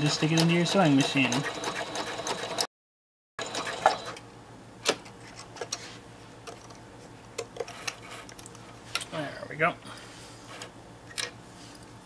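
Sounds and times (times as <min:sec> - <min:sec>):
sewing machine stitching: 0:00.0 - 0:02.7.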